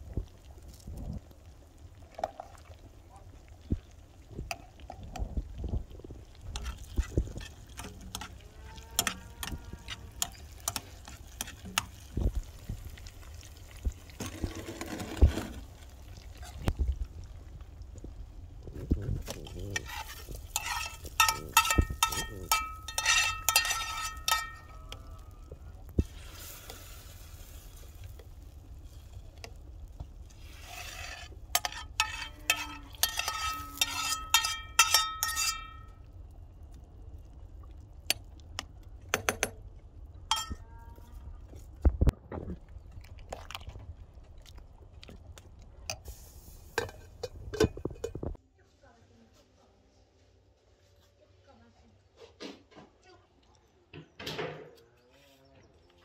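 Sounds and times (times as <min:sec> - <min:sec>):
metal spoon scraping frying pan: 0:06.5 - 0:12.1, 0:14.2 - 0:15.7, 0:19.2 - 0:25.4, 0:30.3 - 0:36.0, 0:40.3 - 0:40.6, 0:46.7 - 0:48.3.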